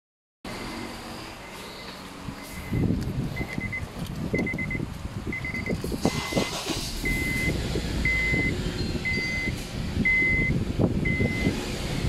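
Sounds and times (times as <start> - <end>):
low rumble inside car: 2.6 - 12.0
electronic beeper tone: 5.4 - 10.5.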